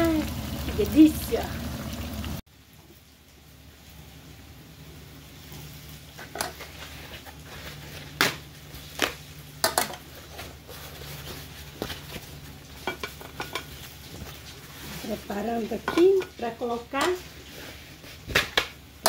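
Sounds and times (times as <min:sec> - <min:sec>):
faint frying sizzle: 0:00.0 - 0:19.0
kitchenware clinking: 0:09.6 - 0:10.1, 0:12.8 - 0:13.8, 0:15.8 - 0:17.2.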